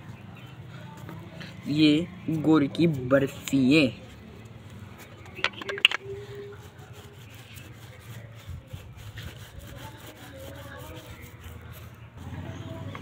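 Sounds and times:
rolling pin rubbing over jaggery: 0:06.2 - 0:12.1.

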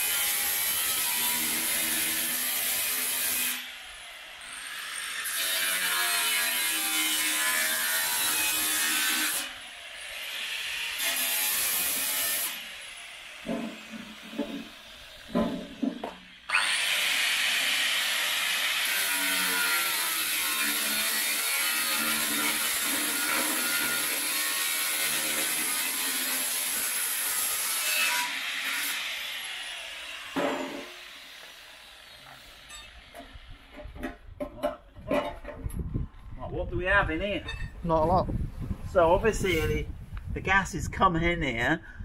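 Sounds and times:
angle grinder cutting metal: 0:00.0 - 0:33.8
metal knocks: 0:13.5 - 0:14.7, 0:15.3 - 0:16.3.

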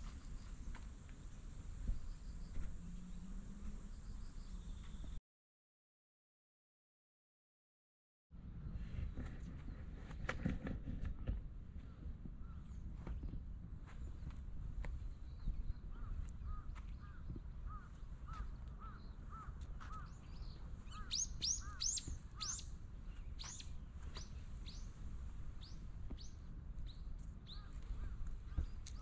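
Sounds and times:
songbirds chirping: 0:00.0 - 0:05.2, 0:08.6 - 0:29.0.

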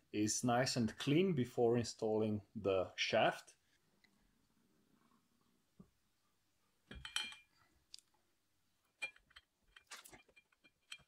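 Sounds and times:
faint metallic clicks and clinks: 0:06.9 - 0:08.2, 0:08.9 - 0:11.0.

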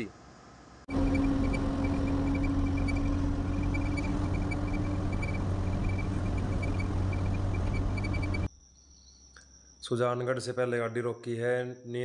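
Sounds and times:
diesel truck engine drone: 0:00.9 - 0:08.5
ticking rattle: 0:00.9 - 0:08.5.

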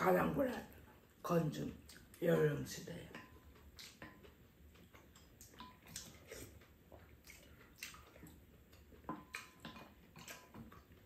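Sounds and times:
wet mouth eating sounds: 0:01.8 - 0:02.2, 0:03.2 - 0:11.0.

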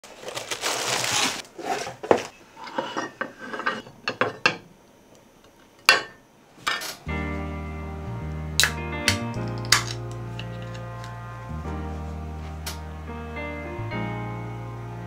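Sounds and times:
plastic bag crinkling: 0:00.0 - 0:02.0.

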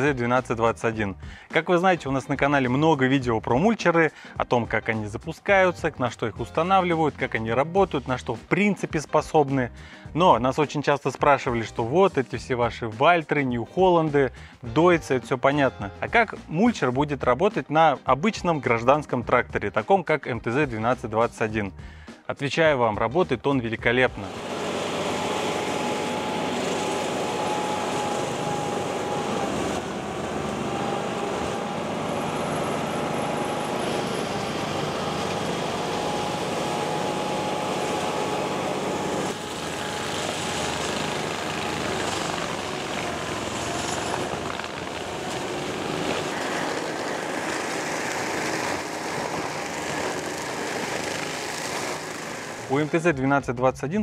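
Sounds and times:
mulcher shredding brush: 0:23.9 - 0:53.0
diesel engine running: 0:24.1 - 0:52.8
steady whine: 0:24.1 - 0:52.9.

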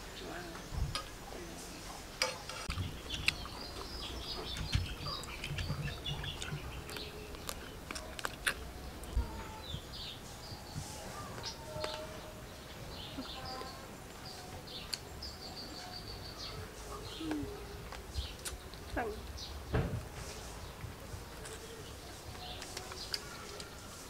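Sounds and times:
small birds chirping: 0:00.0 - 0:24.0
chewing: 0:02.3 - 0:09.6, 0:16.9 - 0:18.9, 0:21.3 - 0:24.0.

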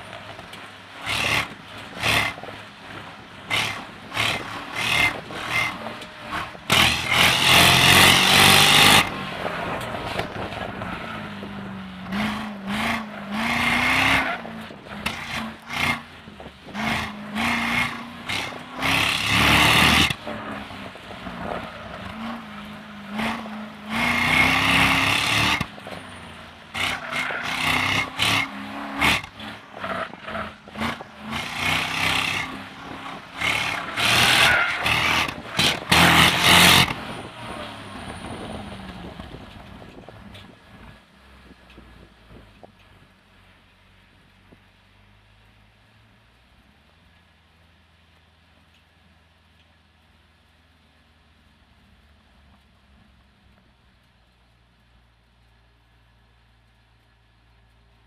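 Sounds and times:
car engine revving: 0:00.0 - 0:40.0.

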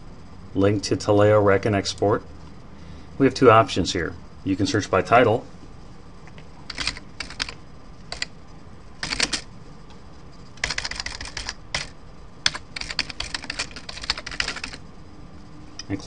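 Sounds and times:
keyboard typing: 0:06.7 - 0:08.3, 0:09.0 - 0:09.5, 0:10.5 - 0:14.8.

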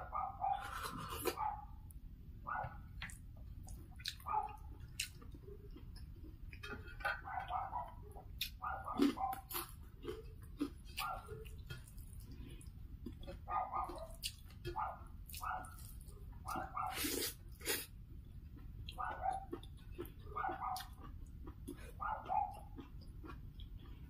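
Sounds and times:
dog barking: 0:00.0 - 0:01.8, 0:02.4 - 0:03.0, 0:04.1 - 0:04.8, 0:07.0 - 0:10.2, 0:11.0 - 0:11.5, 0:13.5 - 0:17.3, 0:18.9 - 0:19.6, 0:20.2 - 0:21.1, 0:21.8 - 0:22.8
eating clicks and mouth smacks: 0:03.0 - 0:07.6.

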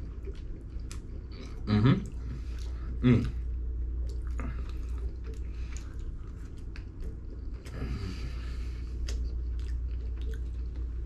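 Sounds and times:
chewing: 0:00.0 - 0:11.0
steady low hum: 0:00.0 - 0:11.0.

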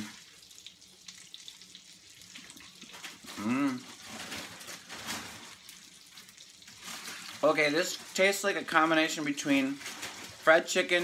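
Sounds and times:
person humming while eating: 0:03.3 - 0:03.9.

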